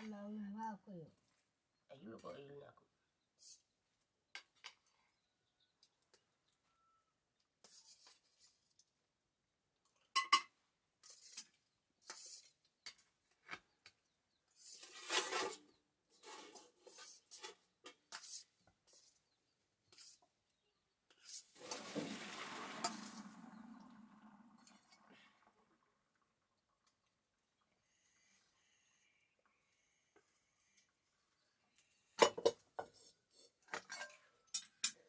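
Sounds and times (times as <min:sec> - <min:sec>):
utensil scraping wok: 0:11.0 - 0:13.0, 0:14.5 - 0:20.2, 0:21.1 - 0:23.4, 0:32.8 - 0:34.6
water pouring into pot: 0:21.5 - 0:27.2.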